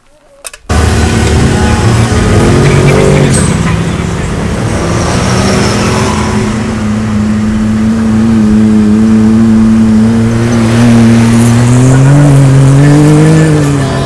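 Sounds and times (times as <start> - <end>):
utv engine running steadily: 6.6 - 14.0.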